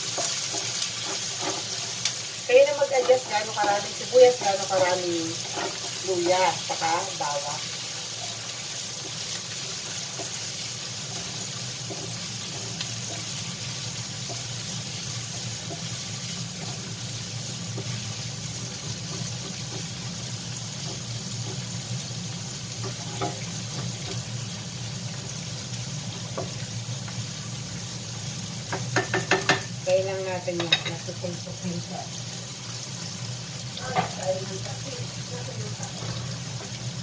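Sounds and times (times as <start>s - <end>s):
onions sizzling in hot oil: 0.0s - 37.0s
wooden spatula scraping pan: 0.1s - 2.0s, 3.0s - 6.4s.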